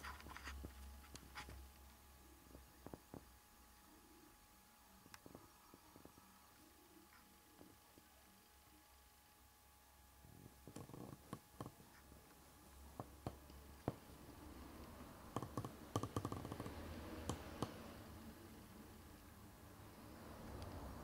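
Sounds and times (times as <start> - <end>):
faint irregular clicks and taps: 10.5 - 14.2, 14.8 - 17.8.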